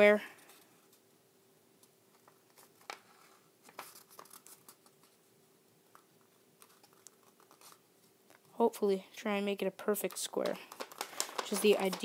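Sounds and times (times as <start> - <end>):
paper crinkling and rustling: 2.1 - 5.2, 10.0 - 12.0.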